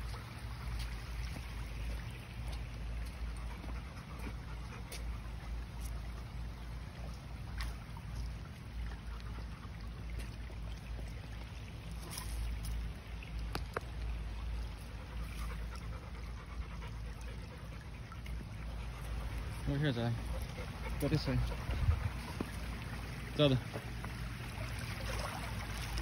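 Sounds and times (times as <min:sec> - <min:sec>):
steady low rumble: 0:00.0 - 0:25.9
creek trickling: 0:00.0 - 0:26.0
dog panting: 0:02.5 - 0:06.2, 0:14.7 - 0:23.1.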